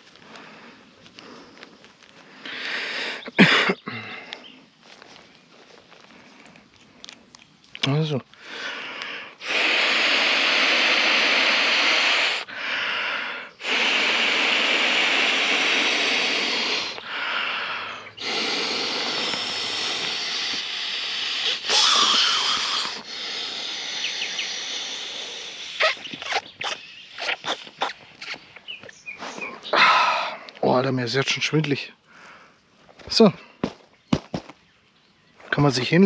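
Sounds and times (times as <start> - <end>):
quick in-breath: 0.0 - 4.6, 8.4 - 26.8, 32.1 - 32.6
person blowing into pillow valve: 9.4 - 28.4.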